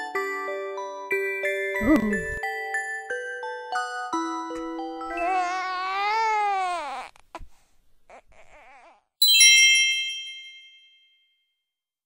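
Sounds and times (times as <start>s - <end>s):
cartoon baby crying: 5.0s - 7.2s, 8.1s - 9.1s
bell-like chime: 9.2s - 11.7s.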